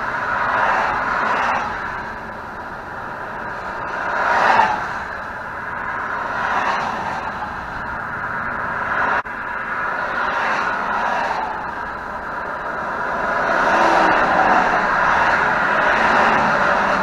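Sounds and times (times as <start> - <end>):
car passing close: 0.0 - 17.0
highway traffic roar: 0.0 - 17.0.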